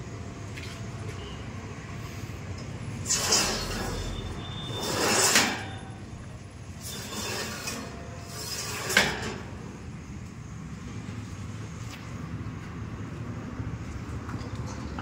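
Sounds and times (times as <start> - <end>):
metal panel scraping and rattling: 4.8 - 5.8, 6.8 - 9.5.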